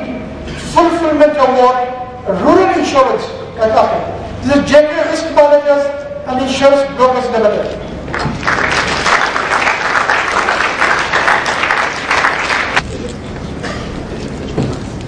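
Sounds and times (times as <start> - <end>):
audience applauding: 8.1 - 12.8.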